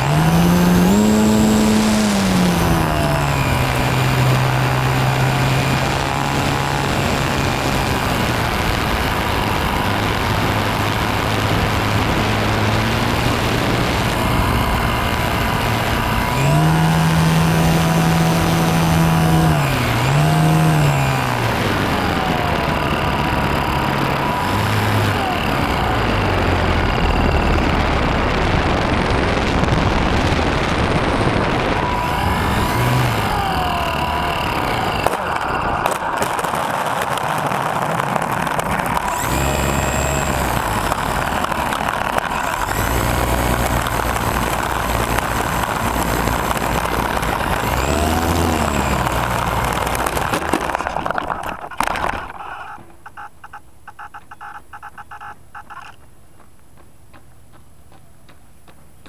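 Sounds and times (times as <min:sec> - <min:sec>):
electric motor whine: 0:00.0 - 0:56.0
wind rush: 0:21.0 - 0:50.2.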